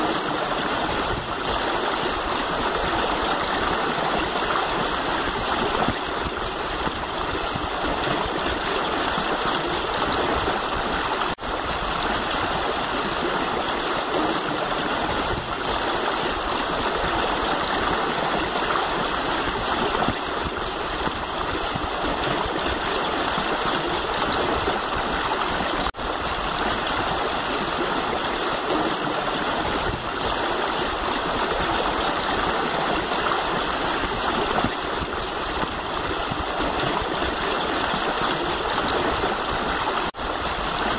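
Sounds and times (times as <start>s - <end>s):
river water rushing over stones: 0.0s - 40.9s.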